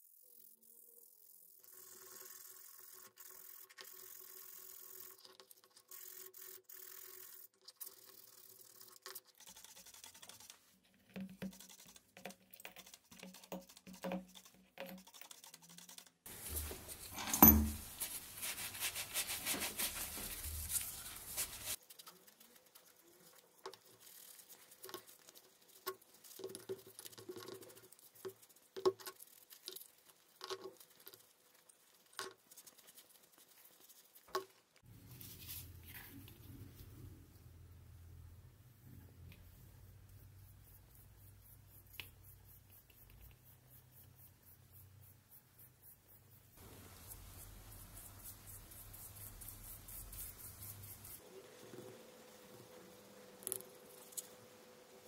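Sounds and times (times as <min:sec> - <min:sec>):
metal taps and scrapes: 0:16.3 - 0:18.2
cloth wiping steel: 0:16.3 - 0:21.8
steady hissing noise: 0:16.3 - 0:26.4, 0:34.8 - 0:55.0.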